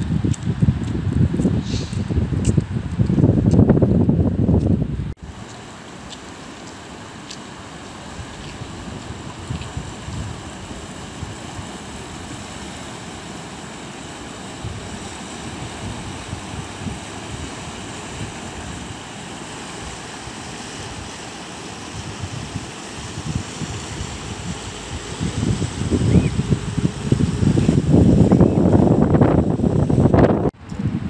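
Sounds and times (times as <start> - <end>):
wind buffeting microphone: 0.0 - 5.2, 8.1 - 12.8, 14.5 - 19.0, 21.8 - 31.0
river rushing: 5.2 - 30.5.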